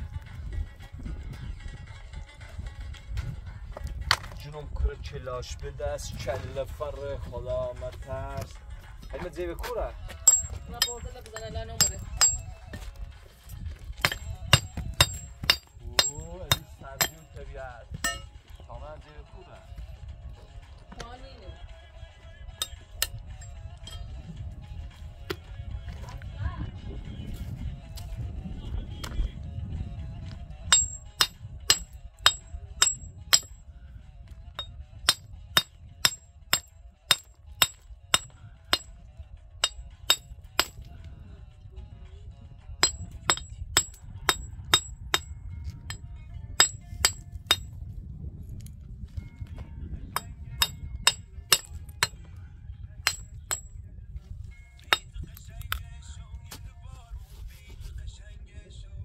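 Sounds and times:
metal hammer tapping stone: 0:10.2 - 0:12.5, 0:14.0 - 0:17.4, 0:18.0 - 0:18.3, 0:22.6 - 0:24.1, 0:30.7 - 0:33.6, 0:34.6 - 0:39.0, 0:39.6 - 0:40.9, 0:42.8 - 0:45.3, 0:45.9 - 0:47.8, 0:50.2 - 0:52.3, 0:53.0 - 0:53.8.

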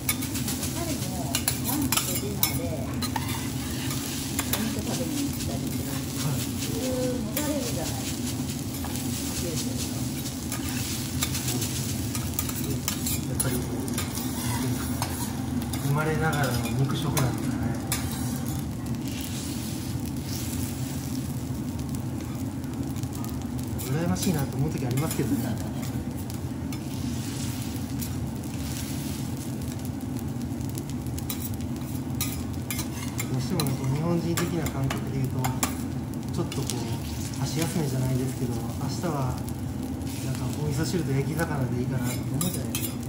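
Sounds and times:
rice sizzling on griddle: 0:00.0 - 0:43.0
steady low hum: 0:00.0 - 0:43.0
metal spatulas scraping: 0:01.3 - 0:05.5, 0:10.4 - 0:19.5, 0:32.2 - 0:33.7, 0:42.0 - 0:43.0.

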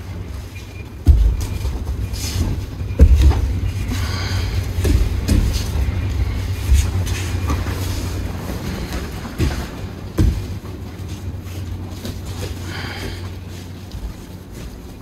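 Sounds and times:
bodies thudding on mats: 0:01.0 - 0:10.9.

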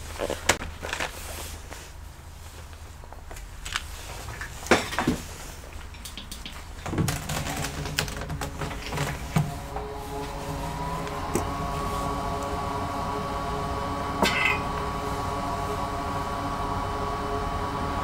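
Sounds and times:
low steady hum: 0:01.6 - 0:18.0
tools clicking and knocking: 0:04.8 - 0:09.2.

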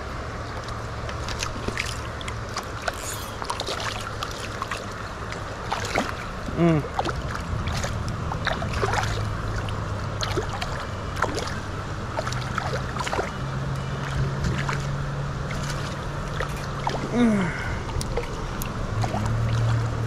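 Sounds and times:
river water running: 0:00.0 - 0:20.0
steady low hum: 0:00.0 - 0:20.0
small splashes and knocks: 0:00.5 - 0:17.2, 0:17.8 - 0:20.0
short falling squeak: 0:02.9 - 0:03.5.

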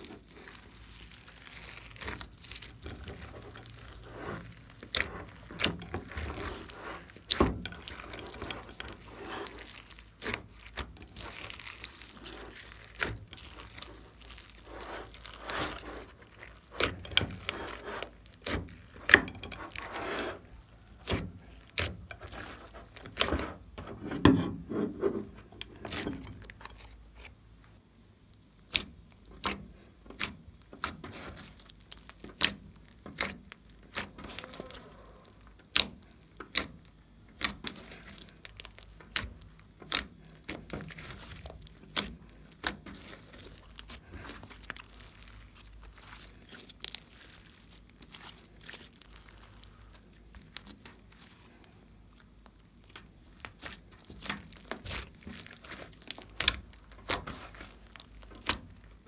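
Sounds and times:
slime squishing and crinkling: 0:00.0 - 0:59.0.

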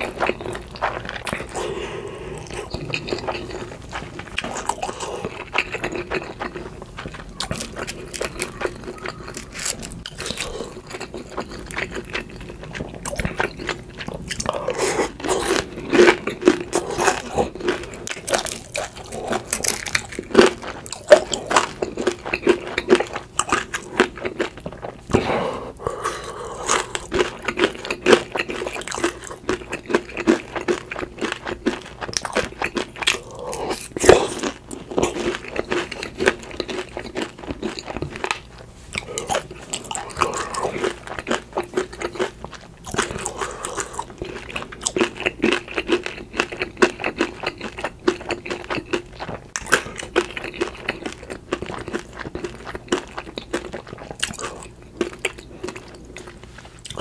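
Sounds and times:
wet mouth noises: 0:00.0 - 0:22.3
person chewing and biting: 0:00.0 - 0:57.0.

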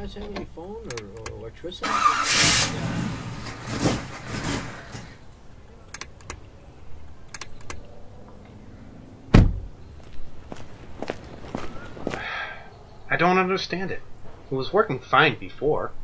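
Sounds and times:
car engine cranking: 0:00.9 - 0:06.5, 0:07.1 - 0:07.9
car door shutting: 0:01.9 - 0:05.2, 0:09.3 - 0:09.7
faint clicks: 0:07.3 - 0:08.6.

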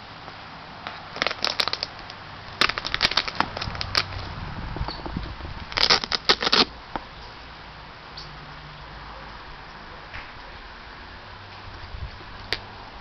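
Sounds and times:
crackling rustles of sneaker box: 0:01.0 - 0:06.7.

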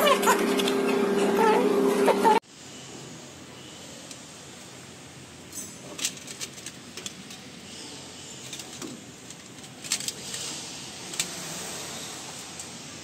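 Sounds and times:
plastic parts clicking and rustling: 0:05.5 - 0:11.5.

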